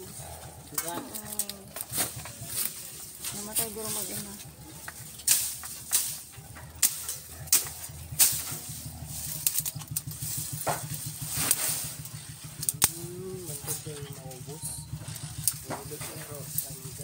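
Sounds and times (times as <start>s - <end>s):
leaves rustling: 0.0s - 17.0s
steady low drone: 0.0s - 17.0s
stems snapping: 0.5s - 14.2s, 15.0s - 17.0s
machete chopping brush: 0.8s - 13.8s.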